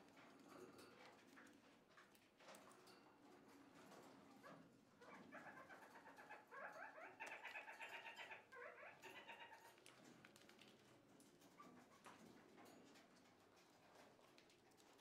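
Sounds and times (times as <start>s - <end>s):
parakeets chattering: 5.4s - 9.6s.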